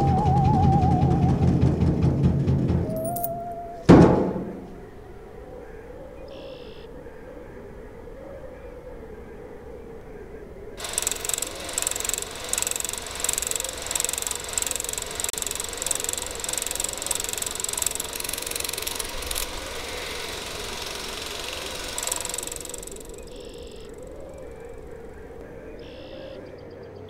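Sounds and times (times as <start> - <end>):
low wavering hum: 0.0 - 3.9
film projector clatter and whine: 10.8 - 26.1.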